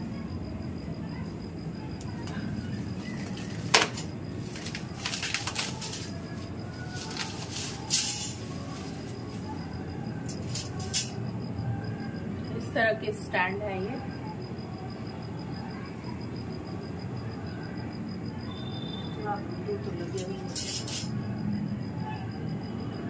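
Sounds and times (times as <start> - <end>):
plastic wrapping rustling: 2.6 - 9.6
wire frames clinking: 2.9 - 9.6, 10.2 - 11.2, 20.0 - 21.1.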